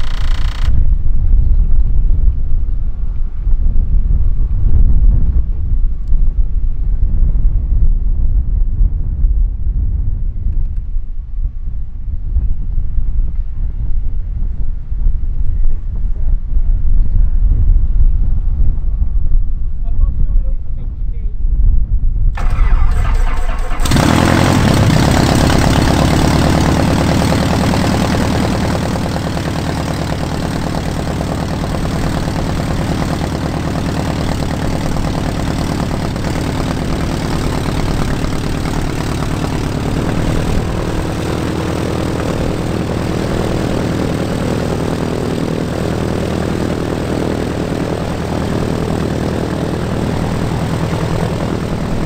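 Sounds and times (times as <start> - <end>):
propeller aircraft engine starting and idling: 0.0 - 4.7, 22.3 - 52.0.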